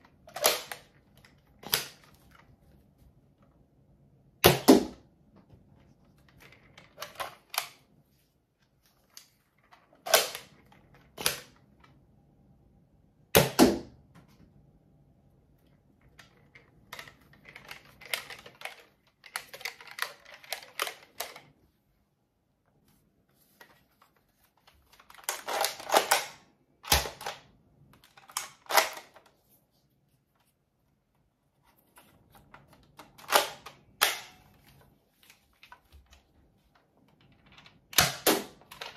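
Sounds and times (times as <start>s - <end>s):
plastic clicking: 15.6s - 21.6s.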